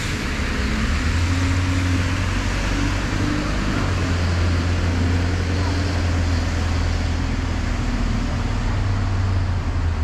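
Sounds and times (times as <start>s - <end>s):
bus engine drone: 0.0s - 10.0s
road traffic hiss: 0.0s - 10.0s.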